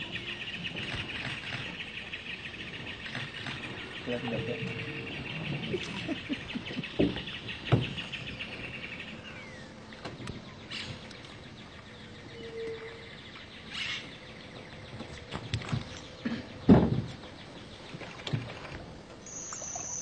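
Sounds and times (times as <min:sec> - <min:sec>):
insect trill: 0:19.3 - 0:20.0.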